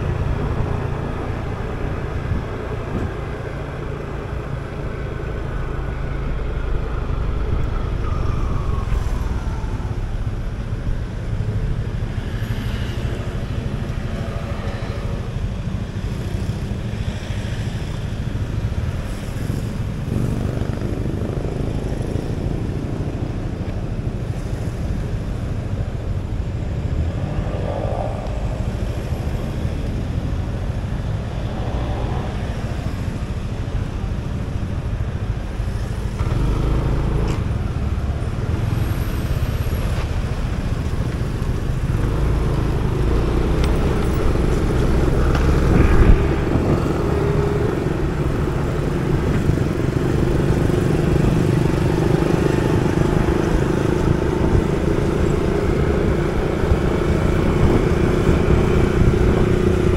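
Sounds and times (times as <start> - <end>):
vehicles passing: 0.0 - 59.9
motorcycle engine running: 15.4 - 23.6.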